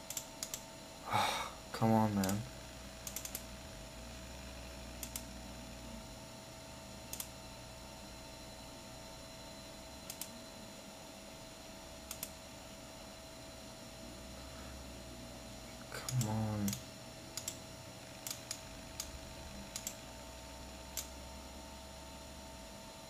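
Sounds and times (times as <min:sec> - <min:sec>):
steady hum: 0:00.0 - 0:23.0
computer mouse clicking: 0:00.1 - 0:00.6, 0:03.0 - 0:03.5, 0:05.0 - 0:05.3, 0:07.1 - 0:07.3, 0:10.0 - 0:10.3, 0:12.1 - 0:12.4, 0:16.1 - 0:17.6, 0:18.2 - 0:20.0, 0:20.9 - 0:21.2.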